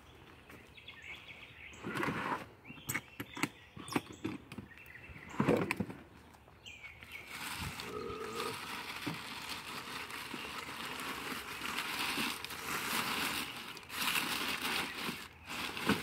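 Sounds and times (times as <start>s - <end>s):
plastic bags crinkling: 7.2s - 16.0s.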